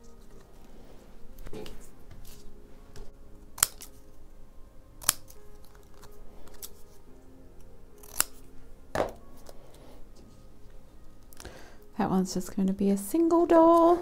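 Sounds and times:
scissors snipping paper: 0:03.6 - 0:04.1, 0:05.0 - 0:07.0, 0:08.0 - 0:08.4.

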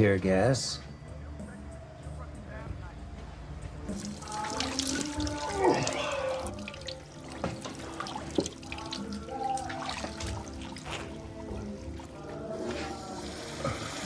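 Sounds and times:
man groaning: 0:05.4 - 0:06.7.

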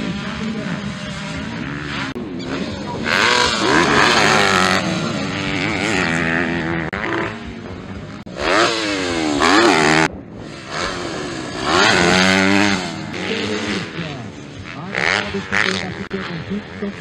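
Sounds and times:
motocross bike engines revving: 0:00.0 - 0:17.0.

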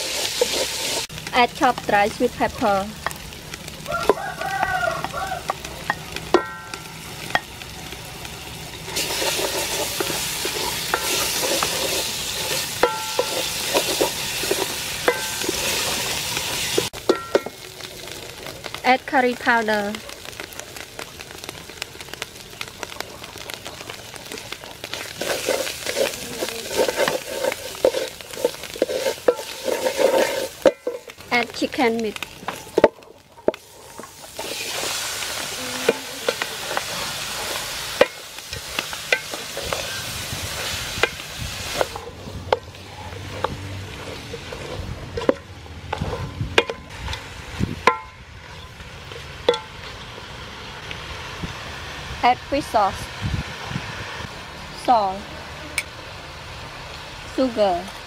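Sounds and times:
wooden spatula scraping a pot: 0:00.0 - 0:01.1, 0:08.8 - 0:18.8, 0:24.2 - 0:46.4
spices sizzling in hot oil: 0:00.0 - 0:58.0.

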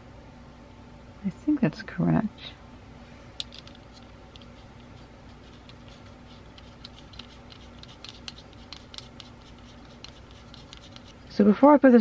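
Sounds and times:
small metal parts clicking: 0:03.4 - 0:11.1.

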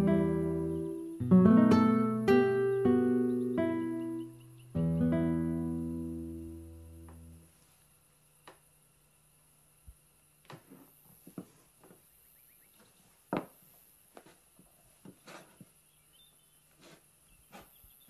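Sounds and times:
guitar chord ringing: 0:00.0 - 0:07.5.

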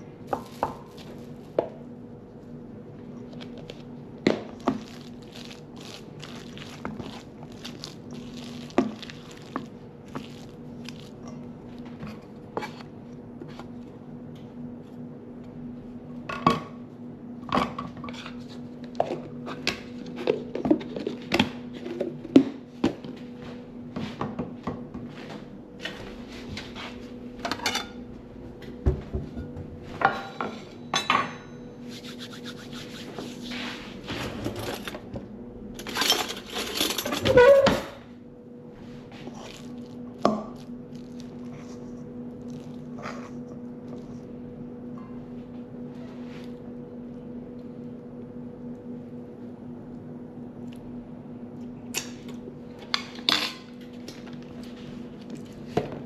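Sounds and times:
faint steady hum: 0:00.0 - 0:56.0
cutlery drawer opening: 0:34.1 - 0:35.1, 0:35.8 - 0:38.0
utensils clattering: 0:34.1 - 0:35.1, 0:35.8 - 0:38.0, 0:52.8 - 0:53.8.

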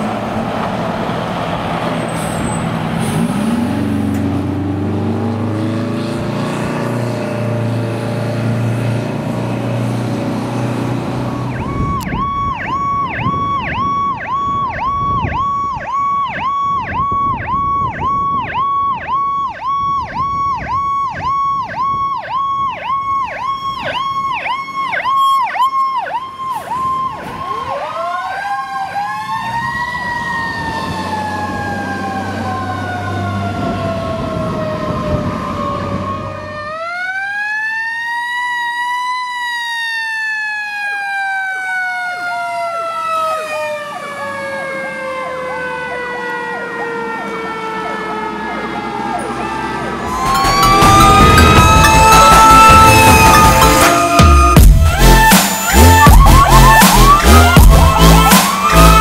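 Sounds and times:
truck engine rumble: 0:00.0 - 0:25.0, 0:43.6 - 0:59.0
fire truck siren yelping: 0:00.0 - 0:59.0
siren wailing: 0:11.0 - 0:59.0.

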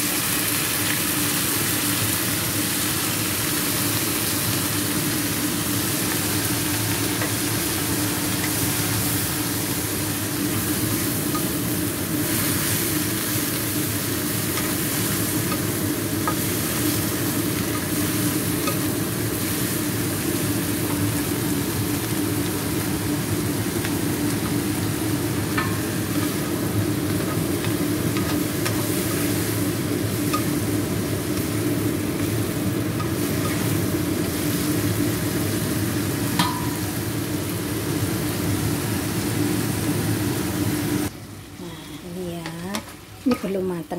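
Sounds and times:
food sizzling in a frying pan: 0:00.0 - 0:41.5
steady hum: 0:04.8 - 0:43.9
spatula scraping and tapping pan: 0:25.5 - 0:26.5, 0:27.1 - 0:28.8.

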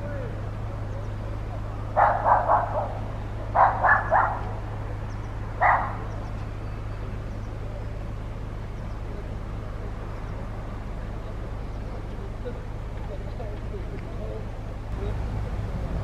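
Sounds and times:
steady low hum: 0:00.0 - 0:16.0
dog barking: 0:01.9 - 0:04.6, 0:05.6 - 0:06.2.

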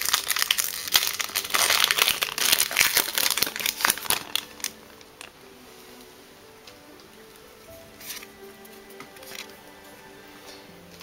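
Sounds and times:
foil wrapper crinkling: 0:00.0 - 0:05.3.

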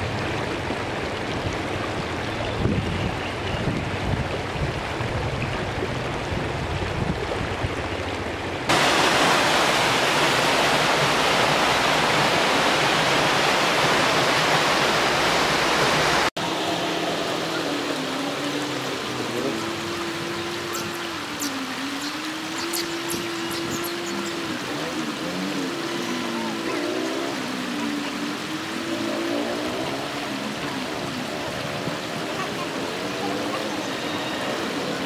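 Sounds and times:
fast-running stream water: 0:00.0 - 0:35.0
river running over stones: 0:00.0 - 0:35.0.

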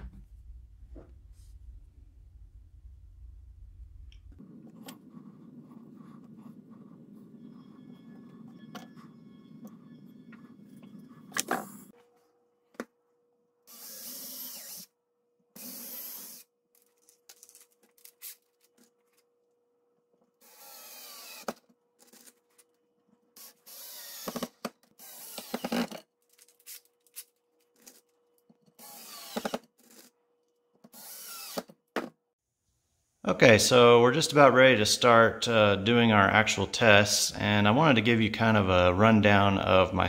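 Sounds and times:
drill boring into wood: 0:13.7 - 0:14.9, 0:15.6 - 0:16.4, 0:20.4 - 0:21.5, 0:23.4 - 0:26.0, 0:28.8 - 0:29.6, 0:30.9 - 0:31.7.

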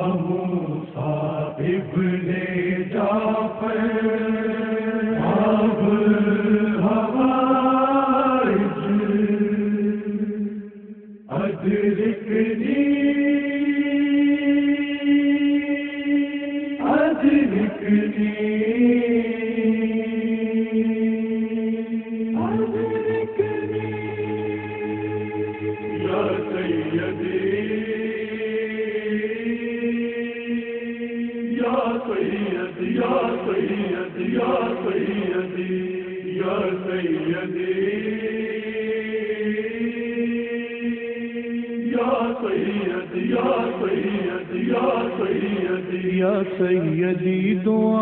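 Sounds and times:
chorus chanting without words: 0:00.0 - 0:48.0.

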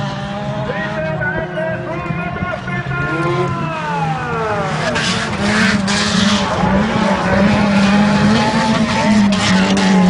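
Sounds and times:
race car engines: 0:00.0 - 0:10.0.

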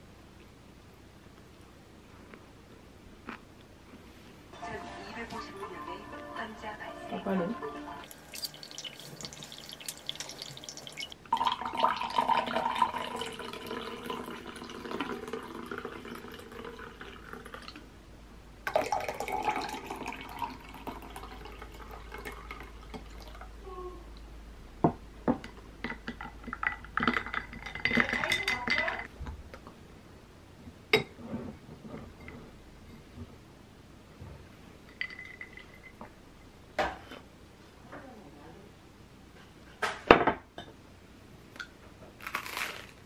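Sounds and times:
ice and metal straw clinking: 0:08.1 - 0:17.4
coffee pouring into glass with ice: 0:08.1 - 0:17.8, 0:18.7 - 0:23.4.

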